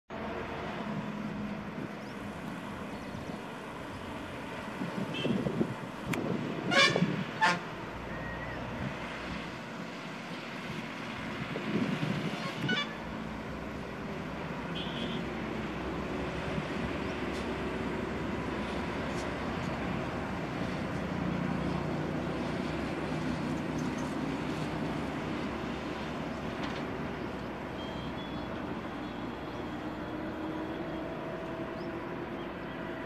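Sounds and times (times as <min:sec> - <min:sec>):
vehicle horn tooting: 0:05.1 - 0:05.5, 0:06.6 - 0:07.7, 0:12.4 - 0:13.0, 0:14.7 - 0:15.3.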